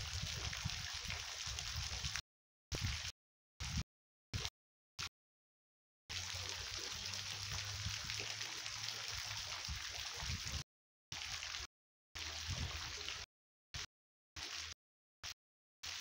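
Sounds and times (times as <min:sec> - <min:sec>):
water rushing and splashing: 0:06.1 - 0:13.3.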